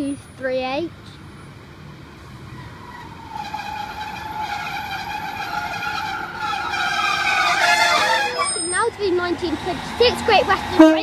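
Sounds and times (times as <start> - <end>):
train brakes squealing: 2.5 - 9.1.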